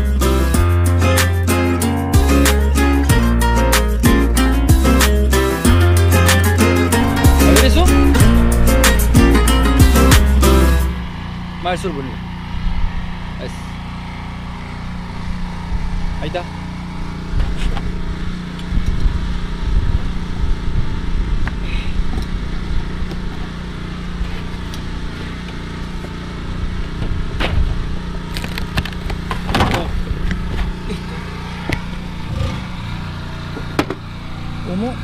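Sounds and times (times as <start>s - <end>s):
low hum with rumble: 5.8s - 35.0s.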